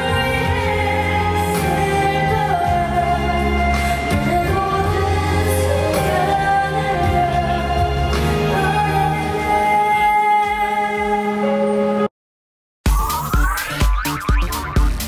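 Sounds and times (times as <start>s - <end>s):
woman singing into microphone: 0.0s - 11.8s
amplified backing music: 0.0s - 12.1s, 12.9s - 15.0s.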